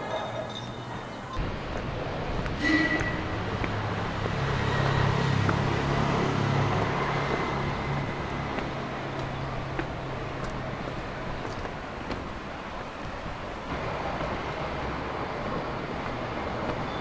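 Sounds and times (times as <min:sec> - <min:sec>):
street noise: 0:00.0 - 0:17.0
car engine humming: 0:01.4 - 0:17.0.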